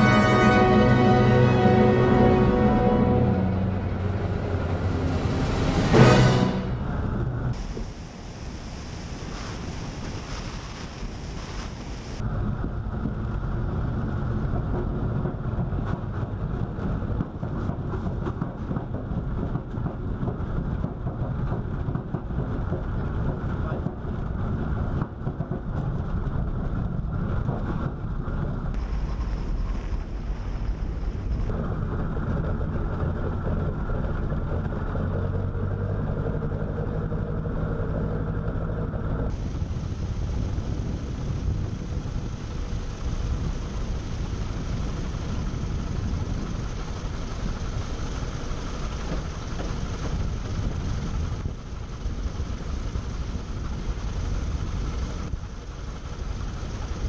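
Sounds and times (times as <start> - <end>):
aircraft piston engine droning: 0.0 - 8.2, 31.6 - 57.0
wind noise: 2.9 - 36.0, 39.0 - 57.0.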